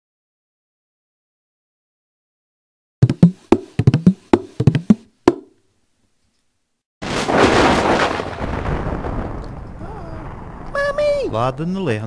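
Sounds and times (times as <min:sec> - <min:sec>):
hollow wooden percussion strikes: 0:03.0 - 0:05.6.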